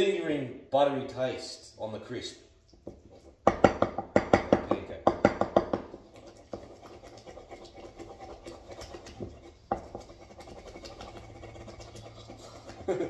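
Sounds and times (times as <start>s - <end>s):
utensil scraping mashed banana: 5.8s - 13.0s.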